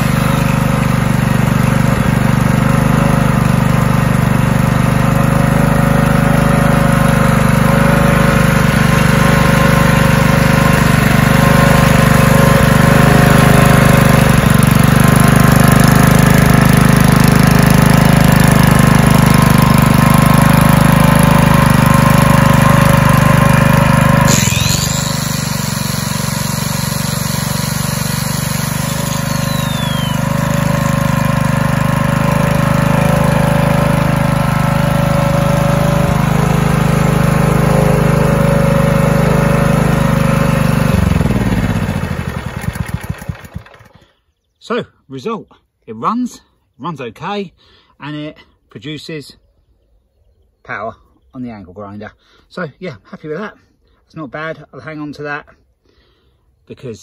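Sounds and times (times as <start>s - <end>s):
generator engine running: 0.0s - 44.4s.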